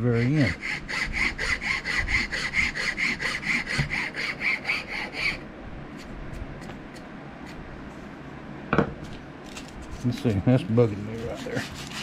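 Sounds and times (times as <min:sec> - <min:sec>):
hand file rasping on wood: 0:00.0 - 0:05.4, 0:10.9 - 0:12.0.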